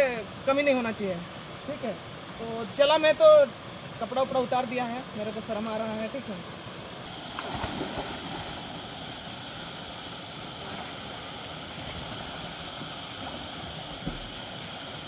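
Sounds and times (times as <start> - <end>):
low thump: 14.0 - 14.3.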